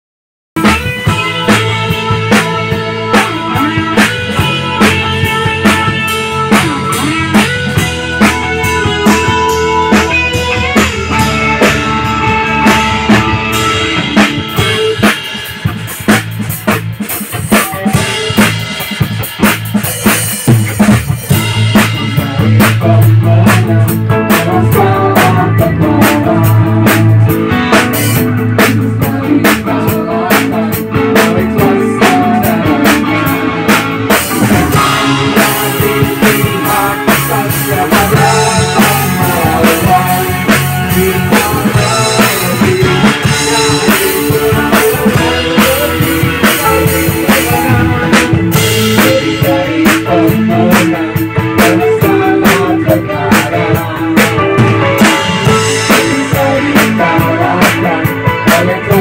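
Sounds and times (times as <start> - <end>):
drum kit beat: 0.6 - 59.0
electric guitar: 0.6 - 59.0
keyboard: 0.6 - 59.0.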